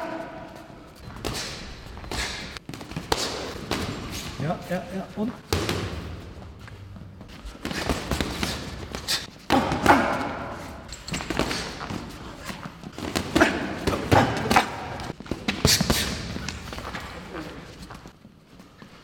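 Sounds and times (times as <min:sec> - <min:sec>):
boxing gloves thudding: 0:01.0 - 0:04.4, 0:05.5 - 0:06.5, 0:07.5 - 0:10.5.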